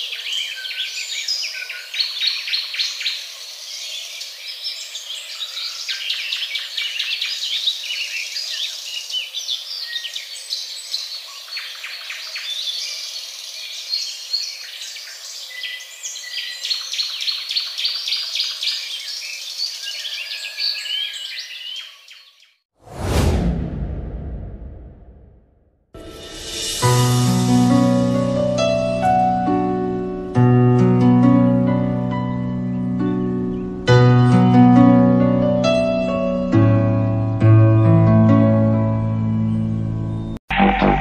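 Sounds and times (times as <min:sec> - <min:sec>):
many birds chirping: 0:00.0 - 0:22.6.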